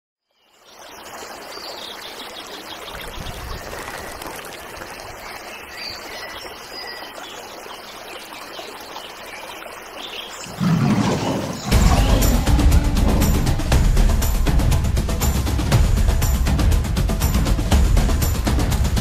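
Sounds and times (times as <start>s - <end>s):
stream rushing over rocks: 0.6s - 15.7s.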